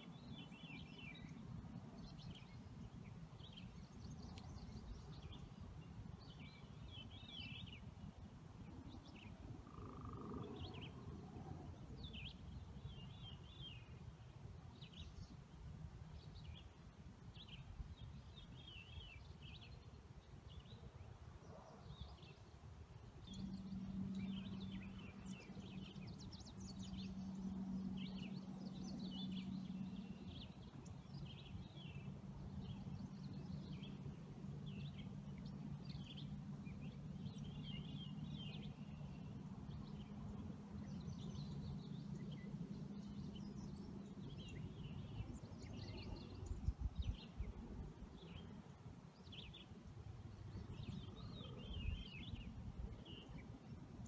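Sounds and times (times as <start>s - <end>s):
faint bird chirps and trills: 0.0s - 14.0s, 17.4s - 54.0s
low steady rumble: 22.0s - 54.0s.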